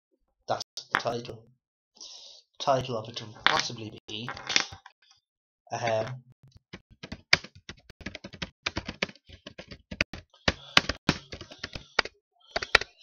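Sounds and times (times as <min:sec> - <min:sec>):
computer keyboard typing: 0:06.8 - 0:13.0.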